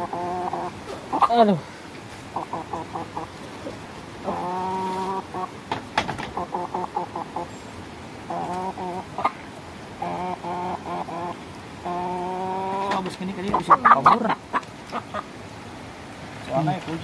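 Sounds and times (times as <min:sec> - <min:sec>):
chicken clucking and squawking: 0:00.0 - 0:07.6, 0:08.2 - 0:15.4
sharp knocks: 0:05.7 - 0:06.4.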